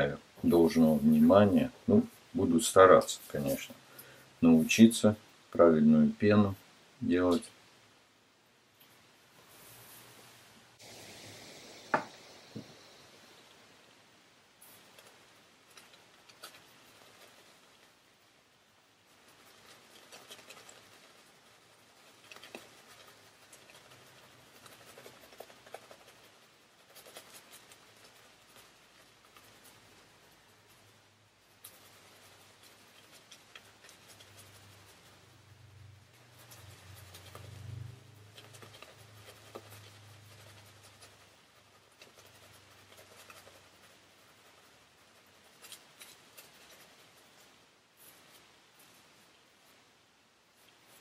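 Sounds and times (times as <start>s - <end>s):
shaving brush scratching lather: 0.4s - 3.8s, 19.1s - 31.0s, 31.6s - 49.1s.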